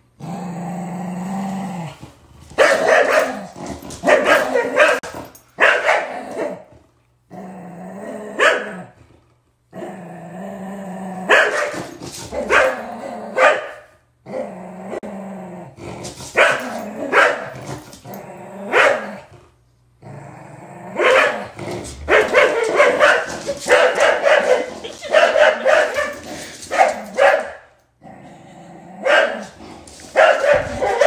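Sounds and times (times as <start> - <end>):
dogs play-growling: 0.2 - 5.4, 6.1 - 13.4, 14.2 - 27.2, 28.0 - 31.0
dogs barking sharply: 2.6 - 6.6, 11.3 - 12.8, 13.4 - 13.8, 16.4 - 17.5, 21.0 - 27.7, 30.1 - 31.0.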